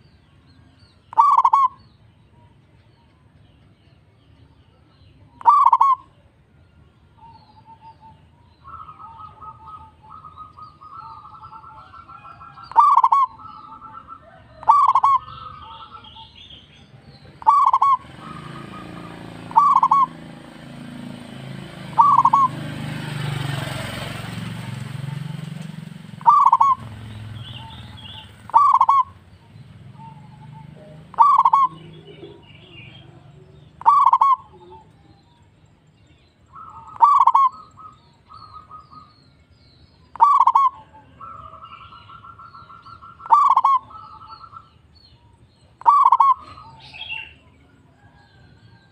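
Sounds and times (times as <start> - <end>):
dove cooing: 1.1 - 1.8, 5.4 - 6.1, 7.2 - 35.2, 36.5 - 39.1, 40.1 - 44.8, 45.7 - 48.8
soft trilled cooing: 12.7 - 16.0, 19.5 - 20.2, 30.2 - 32.4.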